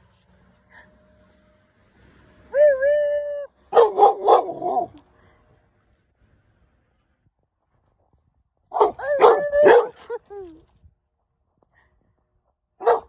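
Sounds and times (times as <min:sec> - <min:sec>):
dog barking excitedly: 0:03.7 - 0:04.9, 0:08.7 - 0:10.0, 0:12.8 - 0:13.0.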